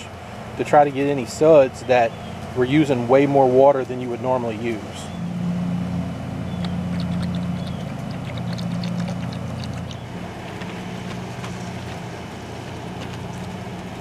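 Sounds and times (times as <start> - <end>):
low mechanical hum: 0.0 - 14.0
soap dripping and splashing: 6.6 - 13.9.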